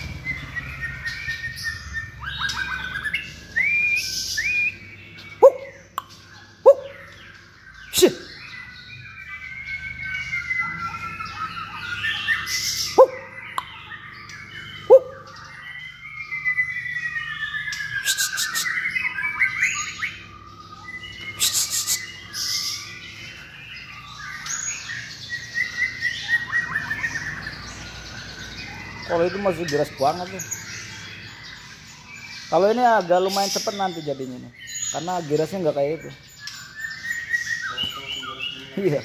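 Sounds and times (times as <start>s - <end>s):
bird harsh rasps: 0.0s - 39.0s
songbird singing whistled notes: 0.0s - 39.0s.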